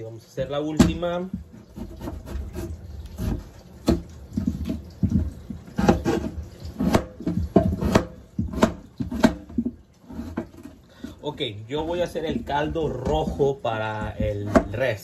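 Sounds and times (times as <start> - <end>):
knife cutting potatoes on board: 1.7 - 10.5.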